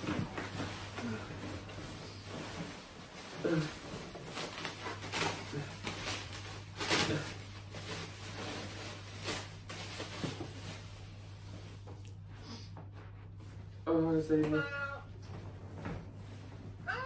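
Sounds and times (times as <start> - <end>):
bubble wrap rustling and crinkling: 0.0 - 12.2
low steady hum: 0.0 - 17.0.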